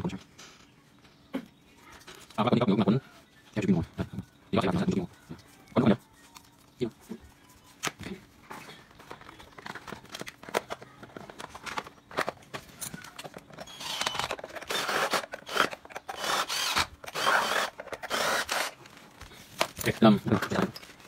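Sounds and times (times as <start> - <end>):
hands handling plastic parts: 7.7 - 17.2, 17.8 - 21.0.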